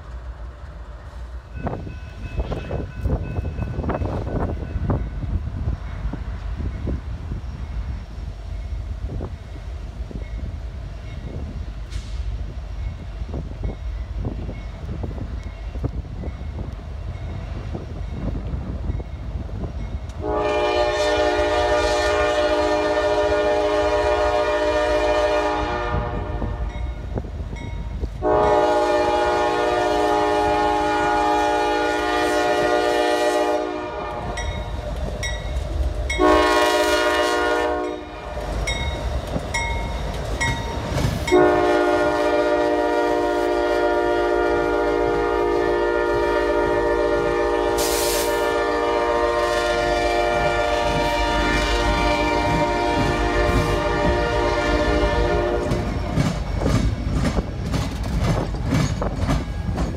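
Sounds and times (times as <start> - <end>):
locomotive horn blasts: 20.2 - 26.8, 28.2 - 34.6, 36.2 - 38.3, 41.3 - 56.0.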